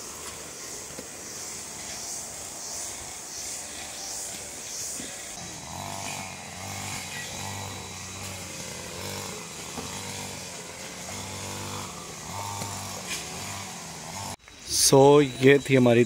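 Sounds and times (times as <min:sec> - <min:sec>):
small engine running: 0:00.0 - 0:14.4.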